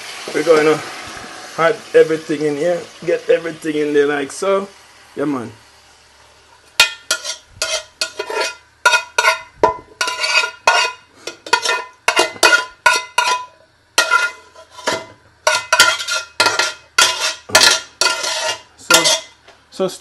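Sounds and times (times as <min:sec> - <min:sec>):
metal spoon scraping a pot: 0:06.8 - 0:19.4.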